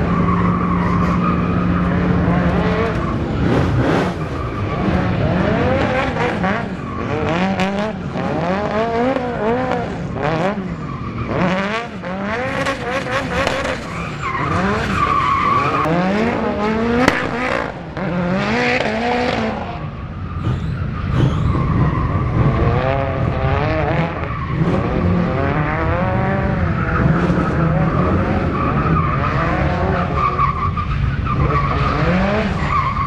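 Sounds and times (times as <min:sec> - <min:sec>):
tyres squealing on pavement: 0:00.0 - 0:09.3, 0:10.5 - 0:16.5, 0:19.3 - 0:23.2, 0:26.5 - 0:33.0
car engine revving: 0:00.0 - 0:33.0.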